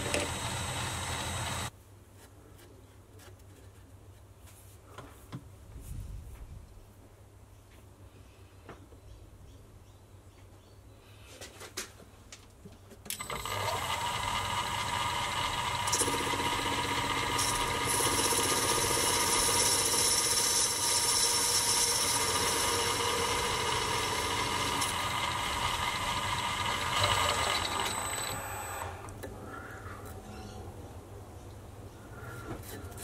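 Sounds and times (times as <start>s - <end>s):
lathe motor whining: 0.0s - 1.7s, 13.1s - 29.3s
lathe tool cutting metal: 0.0s - 1.7s, 13.2s - 29.0s.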